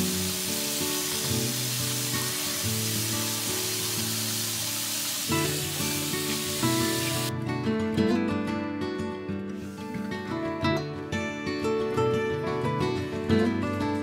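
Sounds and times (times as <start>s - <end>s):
faucet running into steel sink: 0.0s - 7.3s
background music: 0.0s - 14.0s.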